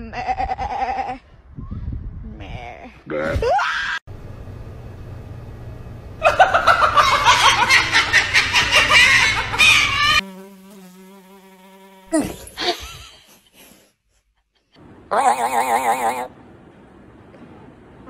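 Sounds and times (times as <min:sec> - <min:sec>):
cockatoo squawking: 0:07.2 - 0:10.2, 0:15.1 - 0:16.3.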